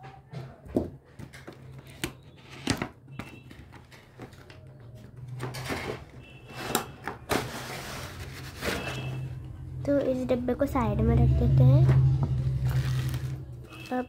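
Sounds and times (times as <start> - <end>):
packaging rustling and scraping: 1.5 - 9.4, 12.3 - 14.0
low steady hum: 9.2 - 13.9.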